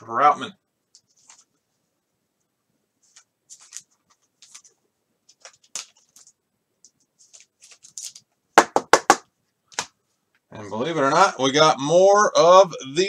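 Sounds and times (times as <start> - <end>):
card scraping in plastic sleeve: 3.1 - 4.7.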